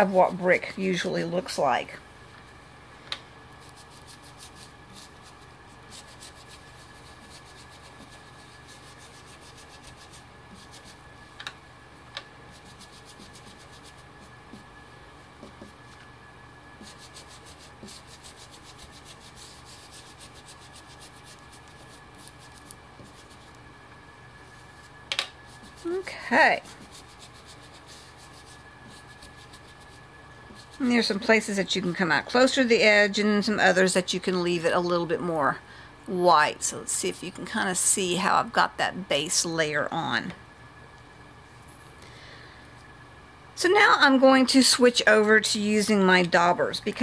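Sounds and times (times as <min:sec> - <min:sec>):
brush rubbing over stencil: 0:03.6 - 0:11.3, 0:12.4 - 0:16.1, 0:16.8 - 0:23.6, 0:24.4 - 0:31.3.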